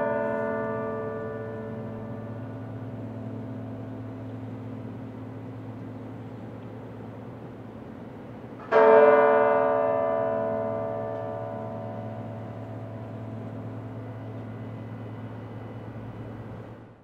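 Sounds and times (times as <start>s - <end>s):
tower bell tolling: 0.0s - 5.7s, 8.6s - 16.8s
deep hum: 0.0s - 7.4s, 11.5s - 17.0s.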